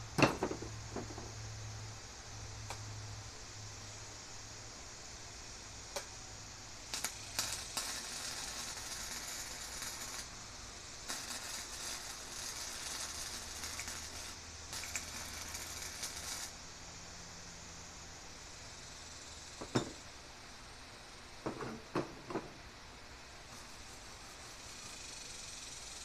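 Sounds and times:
arc welding crackling: 5.8s - 16.9s.

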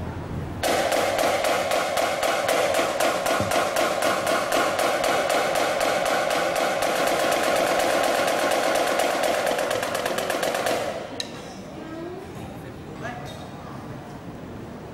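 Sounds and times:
marching snare drum: 0.6s - 11.2s.

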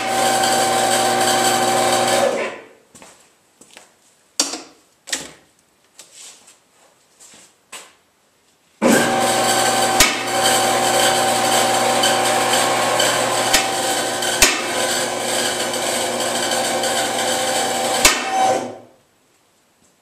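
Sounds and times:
hydraulic pump humming: 0.0s - 2.4s, 8.9s - 18.7s.

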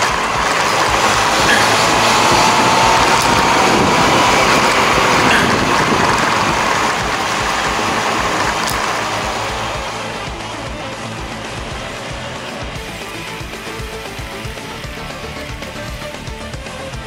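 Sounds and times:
wind and road noise on microphone: 0.0s - 17.0s.

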